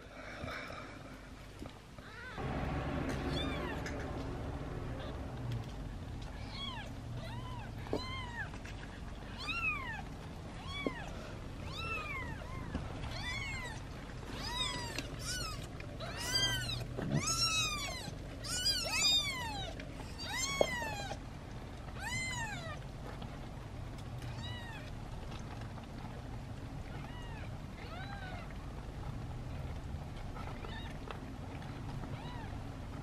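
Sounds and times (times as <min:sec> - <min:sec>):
kittens mewing: 0:06.3 - 0:08.6, 0:09.2 - 0:21.2.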